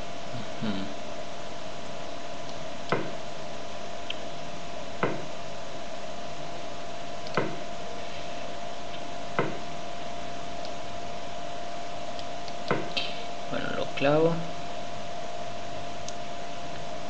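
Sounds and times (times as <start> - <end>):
electrical whine and hiss: 0.0 - 17.0.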